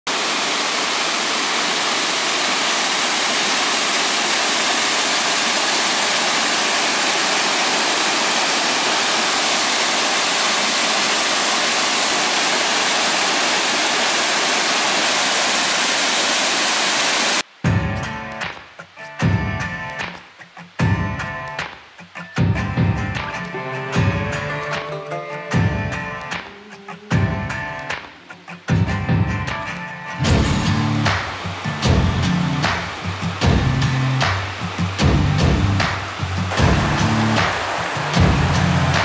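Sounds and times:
waterfall rushing over boulders: 0.1 - 17.5, 30.1 - 39.0
music: 17.5 - 39.0.

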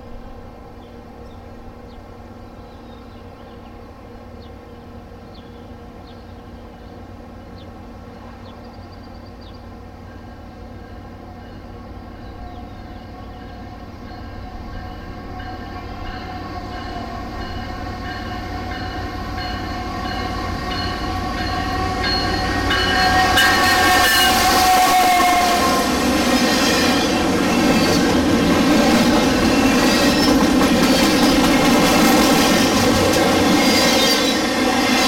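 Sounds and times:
rail clatter: 14.7 - 35.0
locomotive air horn: 21.1 - 26.1.

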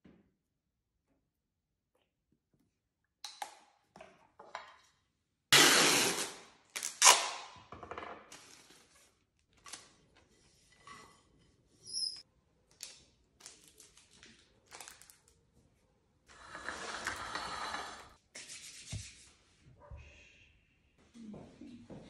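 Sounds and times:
adhesive tape ripping off roll: 5.5 - 7.5.

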